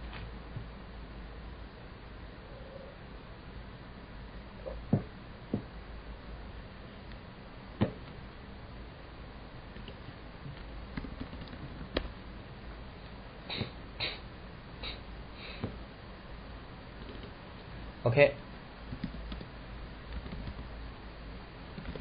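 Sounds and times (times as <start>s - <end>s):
low steady hum: 0.0s - 22.0s
keyboard and mouse clicks: 11.0s - 12.1s, 17.0s - 17.4s.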